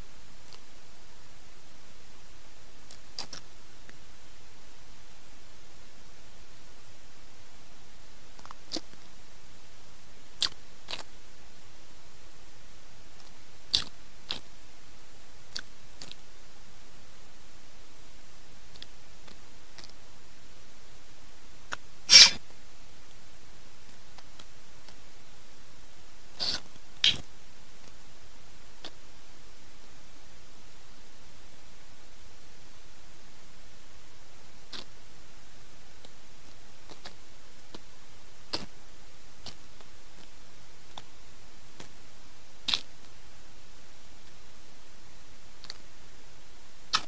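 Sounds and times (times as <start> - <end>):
steady hiss: 0.0 - 47.0
person chewing crunchy food: 13.7 - 14.4, 42.7 - 42.9
sniff through the nose: 22.1 - 22.4, 26.4 - 27.2.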